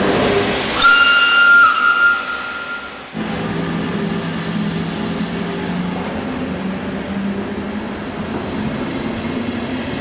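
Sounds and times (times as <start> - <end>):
train running rumble: 0.0 - 10.0
held tone: 0.8 - 3.5.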